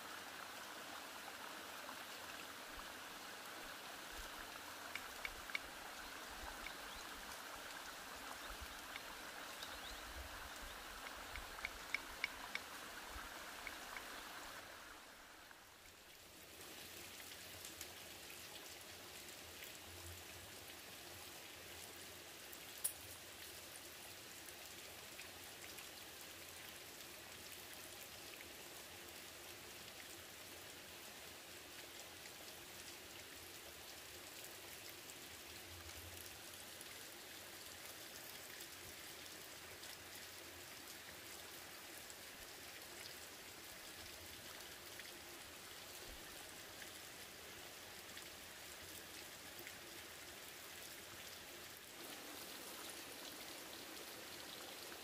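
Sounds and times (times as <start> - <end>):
running water rushing: 0.0 - 55.0
bamboo strips ticking and clicking: 4.8 - 7.0, 8.5 - 14.1, 22.8 - 23.2.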